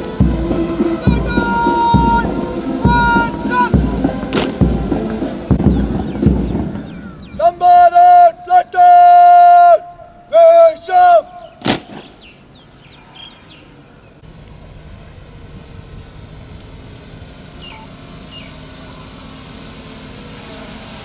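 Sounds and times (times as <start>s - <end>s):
vehicle engine hum: 0.0s - 7.2s, 12.2s - 21.0s
outdoor background rumble: 0.0s - 7.6s, 11.3s - 21.0s.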